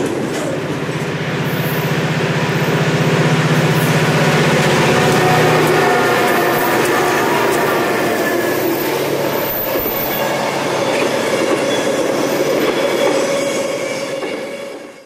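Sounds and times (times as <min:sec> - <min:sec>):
train wheels running on rails: 0:00.0 - 0:15.0
steady wheel squeal: 0:04.6 - 0:14.6.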